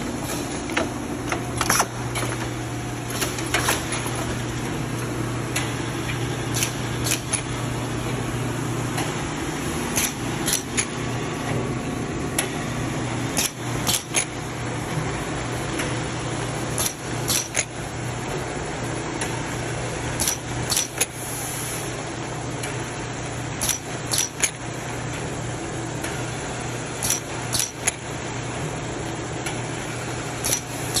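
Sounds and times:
machine hum: 0:00.0 - 0:31.0
sharp clicks and clacks of jars: 0:16.8 - 0:17.7, 0:23.6 - 0:24.6, 0:27.0 - 0:28.0, 0:30.4 - 0:31.0.

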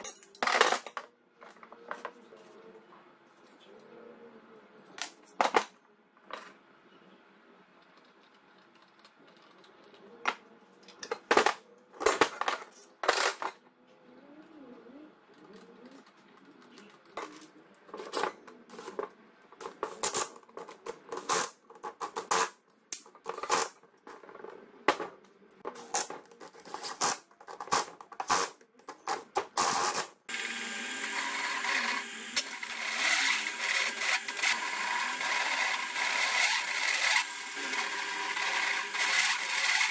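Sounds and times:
cordless drill driving bolts: 0:29.8 - 0:39.9
drill press cutting metal tubing: 0:29.8 - 0:39.9.

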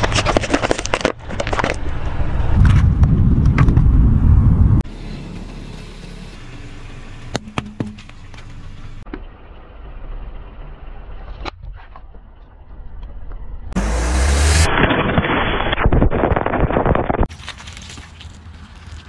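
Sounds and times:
objects cracking under wheels: 0:00.0 - 0:03.9, 0:14.7 - 0:19.0
car tyres rumbling on asphalt: 0:00.0 - 0:19.0.

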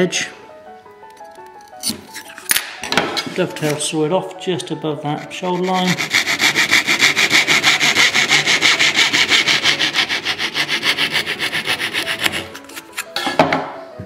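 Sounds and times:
hand saw rasping through wood: 0:05.2 - 0:13.0.

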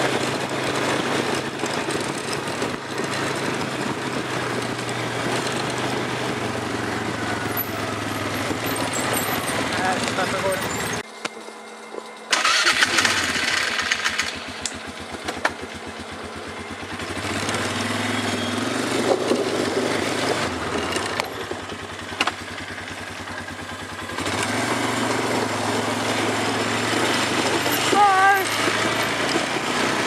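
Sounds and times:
quad bike engine running: 0:00.0 - 0:30.0.

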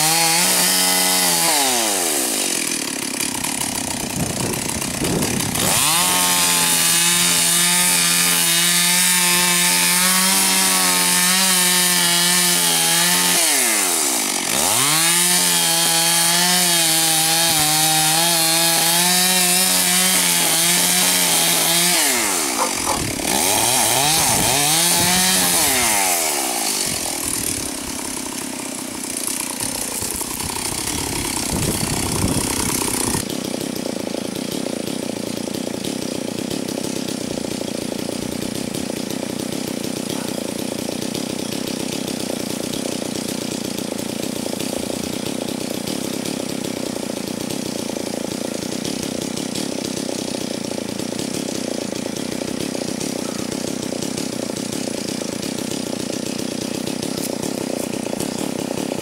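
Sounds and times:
chainsaw cutting wood: 0:00.0 - 0:59.0
tractor engine running: 0:03.3 - 0:06.3, 0:19.7 - 0:25.8, 0:26.9 - 0:33.3, 0:54.4 - 0:59.0.

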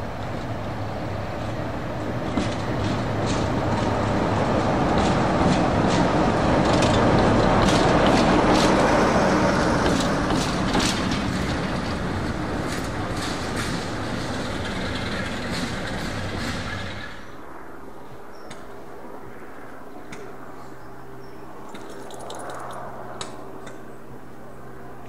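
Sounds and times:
diesel train passing: 0:00.0 - 0:18.0
train wheels clicking: 0:01.4 - 0:17.2.

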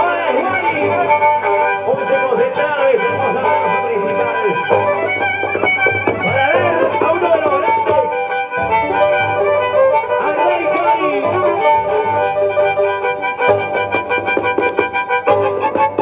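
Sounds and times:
violins playing folk tune: 0:00.0 - 0:16.0.

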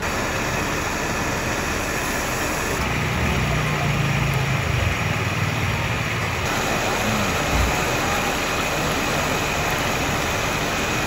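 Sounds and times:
faint crowd chatter: 0:02.7 - 0:11.0.

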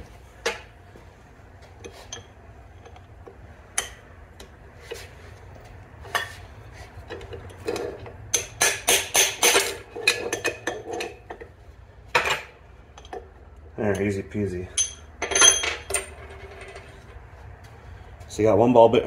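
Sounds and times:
hammer striking metal: 0:08.3 - 0:09.8
metal taps and clinks: 0:12.1 - 0:13.3, 0:14.7 - 0:16.8.

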